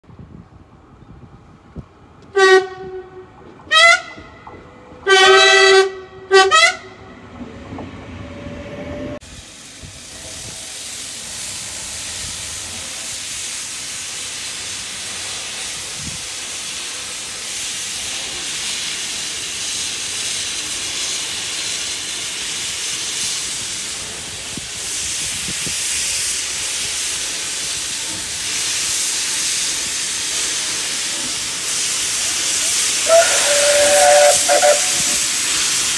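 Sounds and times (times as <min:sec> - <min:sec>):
train horn blasts: 0:02.3 - 0:07.2, 0:33.0 - 0:35.2
steam hissing from locomotive: 0:09.0 - 0:35.9.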